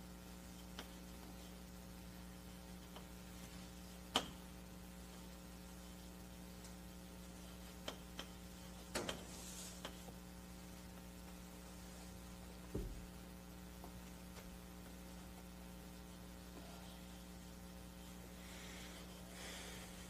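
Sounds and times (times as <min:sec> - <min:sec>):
electrical mains hum: 0:00.0 - 0:20.0
soft low thump: 0:12.7 - 0:13.1.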